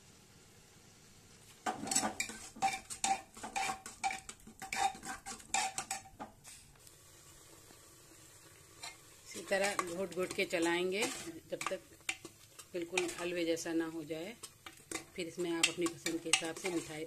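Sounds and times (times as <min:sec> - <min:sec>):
metal ladle scraping a pot: 0:01.7 - 0:06.2, 0:08.8 - 0:17.0.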